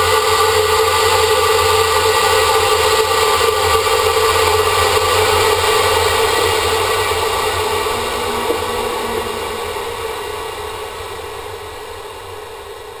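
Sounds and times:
low hum: 4.0s - 12.4s
muffled rocket motor rushing: 4.5s - 11.0s.

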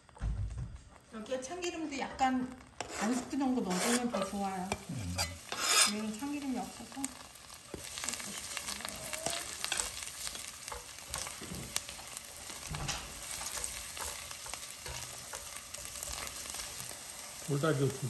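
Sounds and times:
garlic and onion sizzling in oil: 0.0s - 18.0s
utensil clicking against pan: 9.2s - 16.7s.

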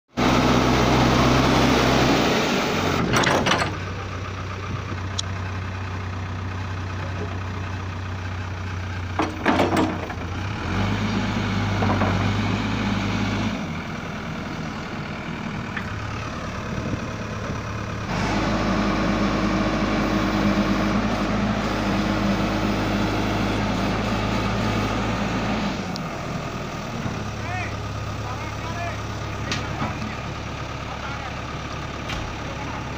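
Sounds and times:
diesel engine running: 0.1s - 32.9s.

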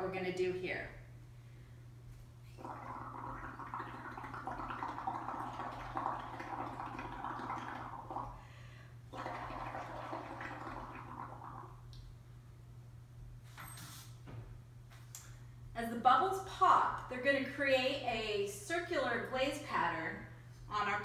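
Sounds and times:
blowing bubbles through straw: 2.5s - 8.5s, 9.1s - 11.9s.

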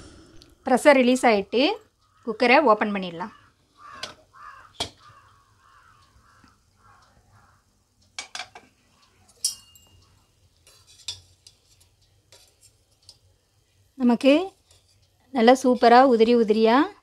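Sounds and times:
crows cawing faintly: 1.8s - 8.0s, 8.6s - 9.4s, 10.0s - 10.4s
metal spoon clinking on pot: 9.3s - 13.2s.

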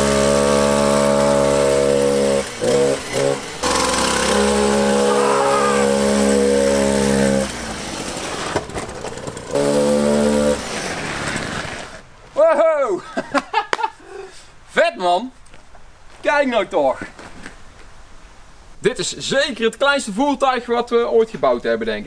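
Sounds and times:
chainsaw engine buzzing: 0.0s - 8.5s, 9.1s - 10.9s.

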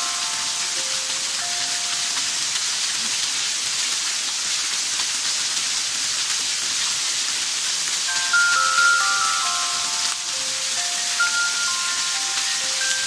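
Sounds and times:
mallet percussion melody: 0.0s - 2.5s, 8.1s - 13.0s
water pouring onto concrete: 0.0s - 13.0s.

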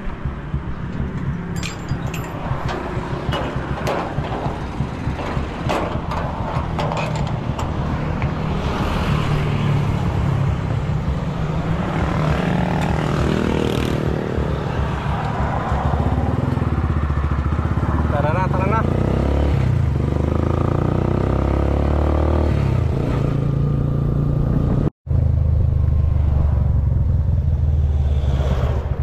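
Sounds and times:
motorcycle engine running: 0.0s - 9.4s
metal gate clanks: 0.9s - 8.4s.

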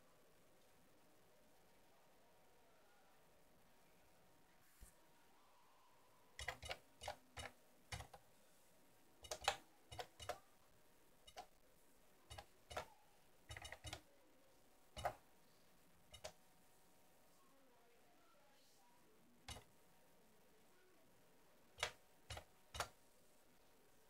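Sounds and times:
keyboard keys clicking: 6.4s - 8.2s, 9.2s - 10.4s, 13.5s - 14.0s.

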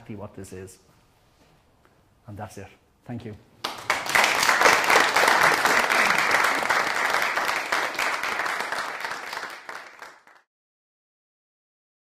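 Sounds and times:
audience applauding: 3.6s - 10.5s.

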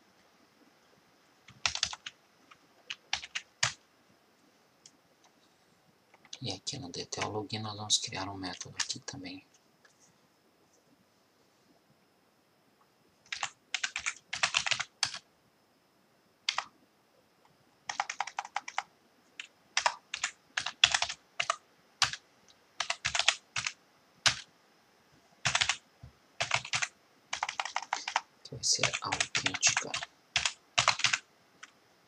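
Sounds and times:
typing on computer keyboard: 1.5s - 3.8s, 13.2s - 15.2s, 16.5s - 16.7s, 17.9s - 22.2s, 22.8s - 24.5s, 25.4s - 25.8s, 26.4s - 31.8s.

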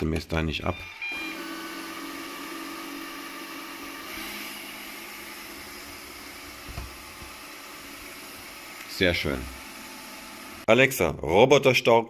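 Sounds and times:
robot vacuum cleaner whirring: 0.7s - 10.7s.

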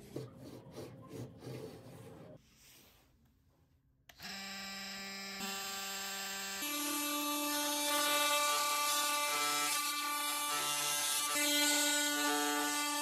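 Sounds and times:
oscillating multi-tool buzzing: 4.2s - 13.0s.

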